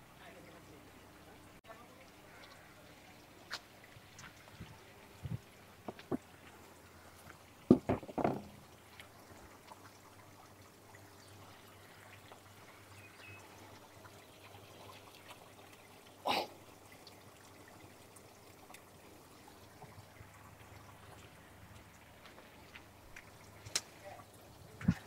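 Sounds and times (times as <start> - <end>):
water trickling: 0.0 - 25.0.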